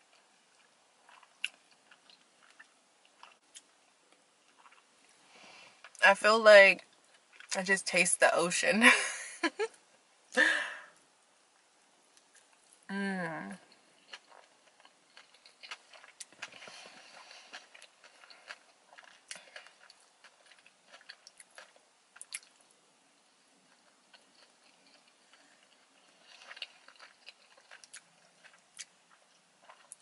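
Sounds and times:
close-up chewing: 0.0s - 5.2s, 13.6s - 22.8s, 23.6s - 30.0s.

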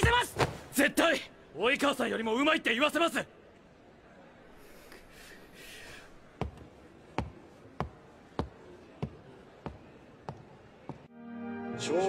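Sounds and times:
footsteps on wooden floor: 6.4s - 11.1s.

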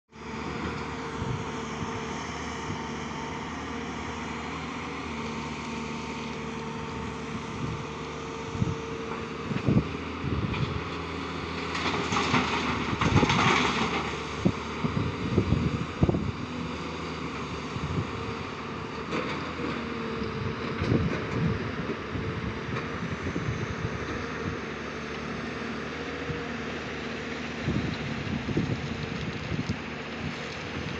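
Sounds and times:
excavator diesel engine running: 0.1s - 30.9s
rock and earth clattering into truck: 11.6s - 14.3s.

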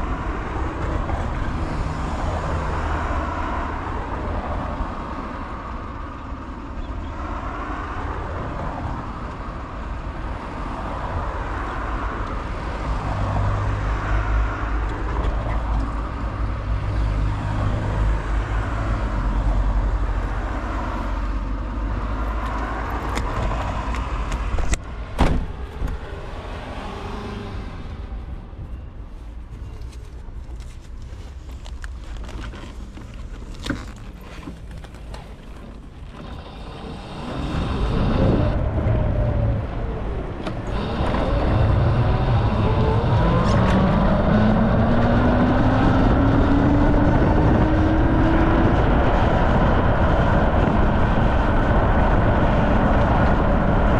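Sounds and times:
road noise: 0.0s - 53.9s
heavy low rumble: 31.7s - 53.9s
wind buffeting microphone: 34.6s - 53.9s.

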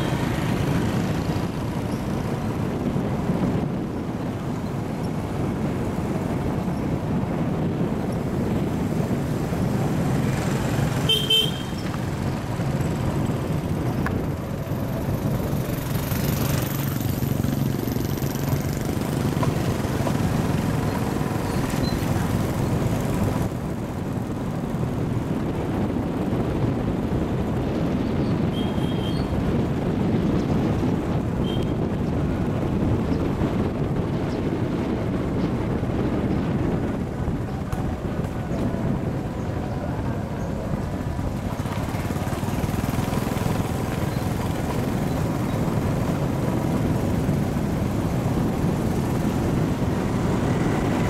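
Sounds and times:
motorbike engine: 0.0s - 51.0s
road noise: 0.0s - 51.0s
horn beep: 11.1s - 11.8s.

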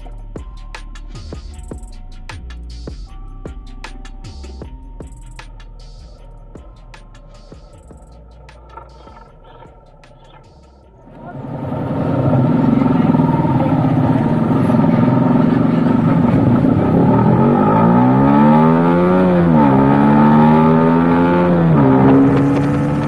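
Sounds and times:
motorcycle engine accelerating: 4.2s - 23.0s
loud rushing noise: 11.0s - 23.0s.

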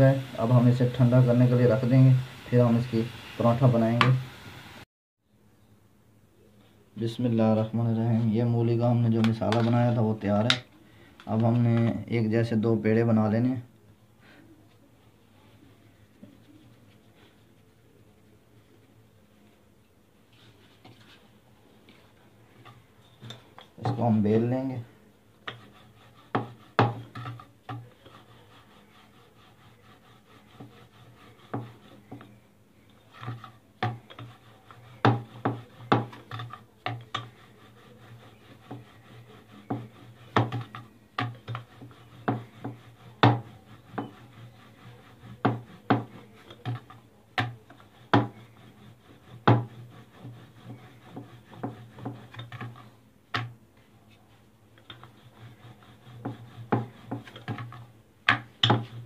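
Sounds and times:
soft rubbing of dough: 0.0s - 4.3s, 6.4s - 59.0s
rolling pin knocking on board: 26.3s - 27.9s, 35.0s - 37.4s, 39.6s - 44.2s, 45.4s - 48.4s, 49.4s - 53.5s, 56.2s - 59.0s.

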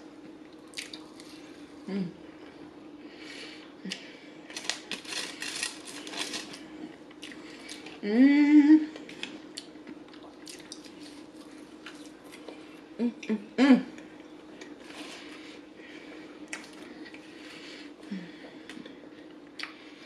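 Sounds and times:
faint steady hum: 0.0s - 20.0s
person humming: 1.8s - 2.2s, 8.0s - 9.0s
aluminium foil crinkling: 4.5s - 6.7s.

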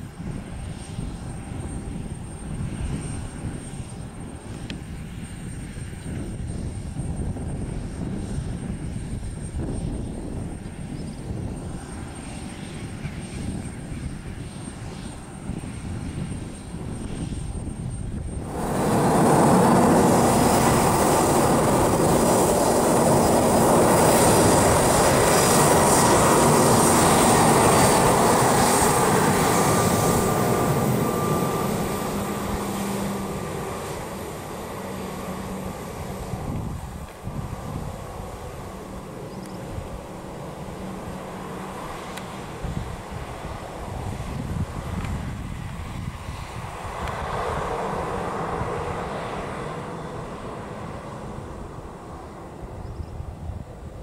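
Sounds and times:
jet engines roaring: 0.0s - 54.0s.

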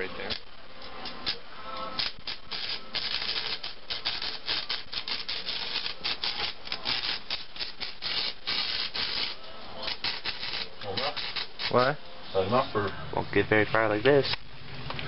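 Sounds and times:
welding arc crackling: 0.0s - 12.0s.

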